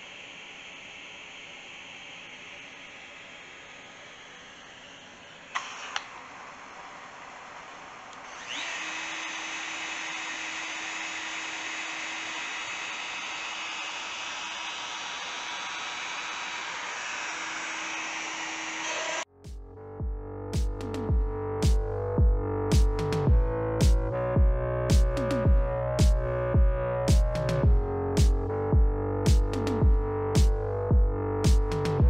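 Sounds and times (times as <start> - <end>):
router motor whining and running: 0.0 - 19.3.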